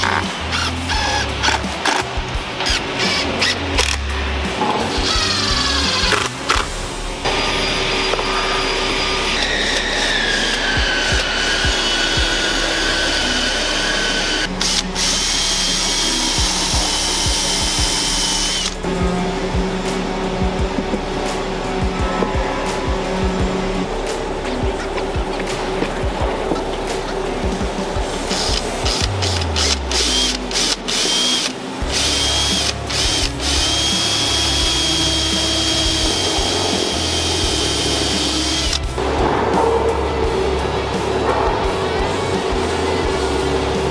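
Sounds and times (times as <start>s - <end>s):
high machine whine: 0.0s - 43.9s
drill driving into wood: 9.3s - 18.8s, 28.4s - 38.8s.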